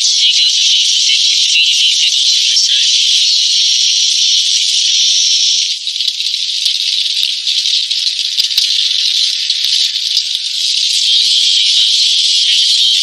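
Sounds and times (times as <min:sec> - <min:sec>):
rain pattering on a tarp: 0:04.1 - 0:13.0
faint ticks: 0:04.2 - 0:11.2.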